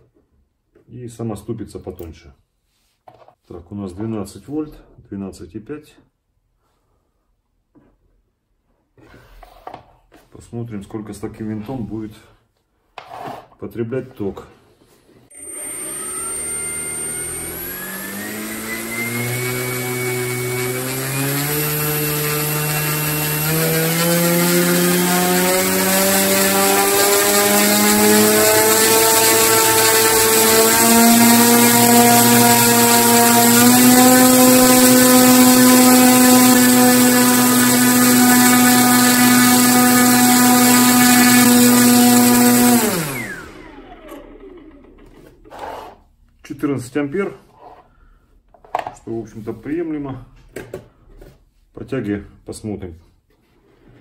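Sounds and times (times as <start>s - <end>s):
electric motor propeller whine: 15.3s - 45.2s.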